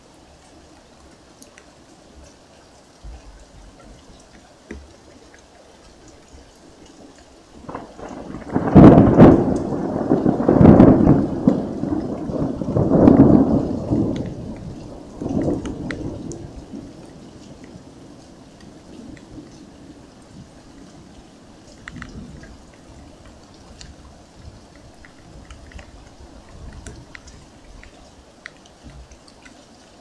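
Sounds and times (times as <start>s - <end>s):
thunder rumbling: 7.5s - 28.0s.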